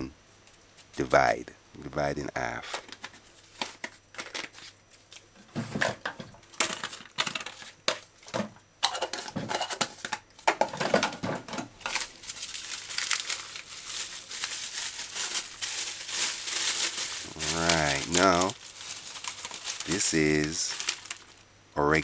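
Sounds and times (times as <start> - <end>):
handling noises: 2.5 - 21.4
plastic bag crinkling: 11.8 - 21.5.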